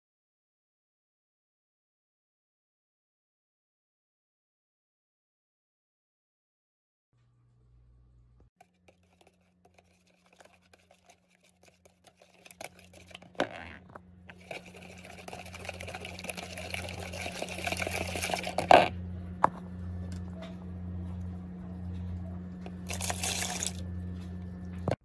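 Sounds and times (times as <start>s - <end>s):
whisk beating eggs in a bowl: 8.6s - 18.9s, 22.6s - 23.8s.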